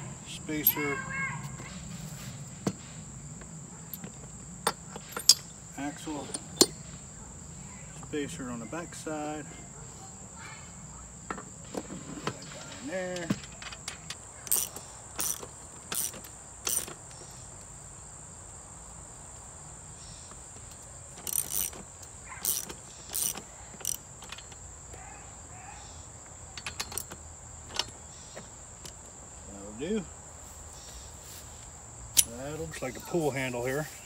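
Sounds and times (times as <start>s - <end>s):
crickets chirring: 0.0s - 34.0s
metal knocks: 3.9s - 5.5s
socket wrench clicks: 14.4s - 17.0s, 21.2s - 21.8s, 22.4s - 24.5s, 26.6s - 27.9s.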